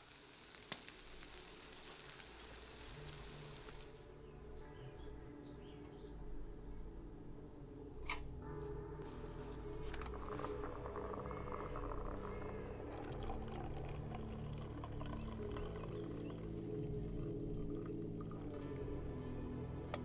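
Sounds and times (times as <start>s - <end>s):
coffee pouring into metal mug: 9.8s - 18.7s.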